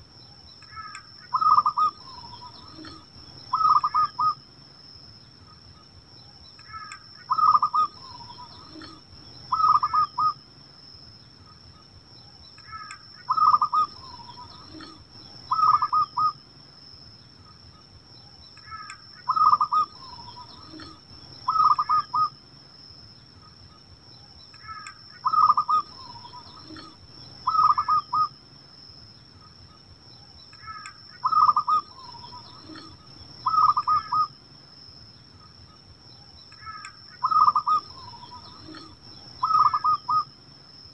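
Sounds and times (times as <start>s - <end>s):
dove cooing: 0.7s - 4.4s, 6.7s - 10.4s, 12.7s - 16.4s, 18.6s - 22.3s, 24.6s - 28.3s, 30.6s - 34.3s, 36.6s - 40.3s.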